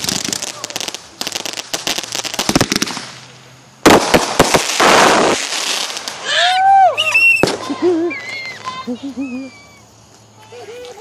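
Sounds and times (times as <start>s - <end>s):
fireworks banging and crackling: 0.0s - 11.0s
child squealing: 6.2s - 11.0s.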